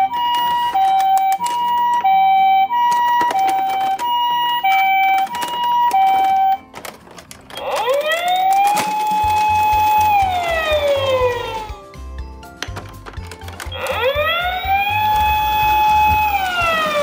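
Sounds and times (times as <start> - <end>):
two-tone electronic siren: 0.0 - 6.7, 7.6 - 11.8, 13.7 - 17.0
clicks: 0.0 - 11.8, 12.4 - 17.0
rising wail siren: 7.6 - 11.8, 13.8 - 17.0.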